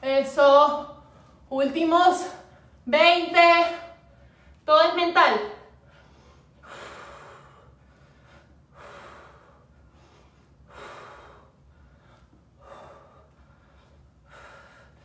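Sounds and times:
woman breathing hard: 5.7 - 15.0.

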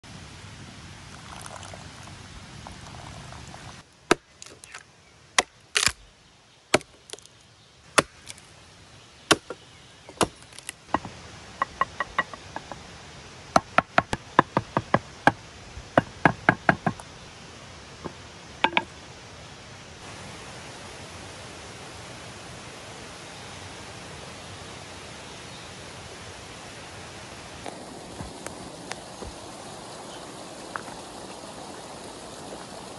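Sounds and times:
liquid pouring into wooden cup: 1.1 - 3.7, 28.1 - 32.8
wooden knocks from hammering: 10.9 - 12.8, 16.0 - 17.0, 18.0 - 18.9.

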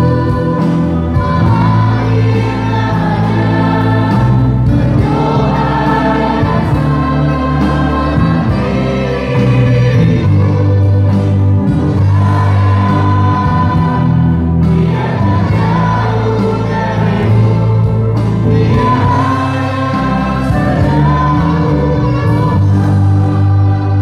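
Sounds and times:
live band playing: 0.0 - 24.0
women singing worship song: 0.0 - 24.0.

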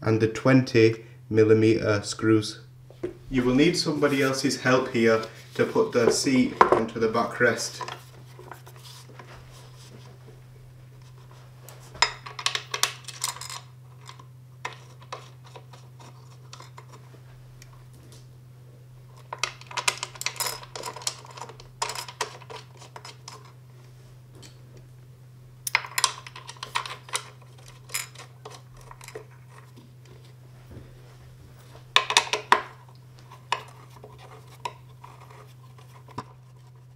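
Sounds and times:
steady low hum: 0.0 - 36.9
chair parts clicking and rattling: 19.2 - 23.6, 25.7 - 30.3.

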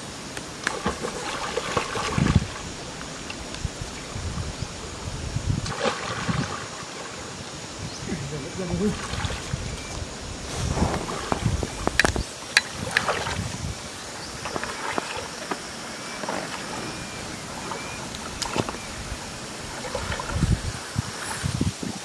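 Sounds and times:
sharp water splashes: 0.5 - 3.5, 5.6 - 7.3, 10.5 - 21.6
water sloshing around legs: 0.6 - 3.4, 5.6 - 7.3, 8.8 - 21.4
wind buffeting microphone: 1.6 - 6.8, 7.6 - 22.0.

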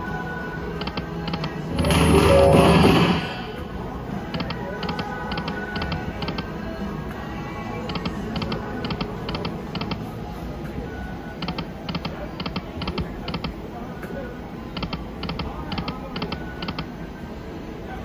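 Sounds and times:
background hubbub: 0.0 - 18.0
slot machine reel-stop clicks: 0.8 - 3.6.

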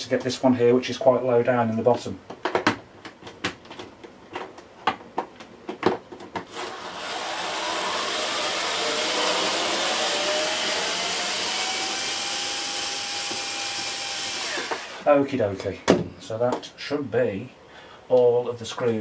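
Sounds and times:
electric screwdriver motor running: 6.5 - 15.0.

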